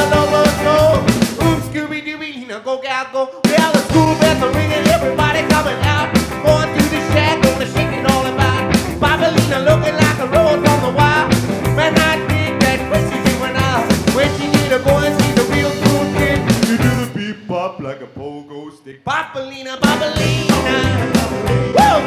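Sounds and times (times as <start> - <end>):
electric guitar lead: 0.0 - 1.8, 3.9 - 17.0, 19.8 - 22.0
driving drum beat: 0.0 - 1.9, 3.4 - 17.9, 19.8 - 22.0
upright bass: 0.0 - 2.0, 3.8 - 17.3, 19.8 - 22.0.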